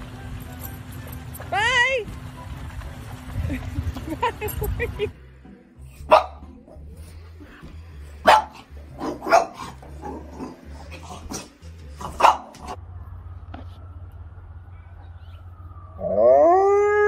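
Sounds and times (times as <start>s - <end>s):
dog barking: 6.0s - 6.5s, 8.2s - 10.2s, 11.3s - 12.8s.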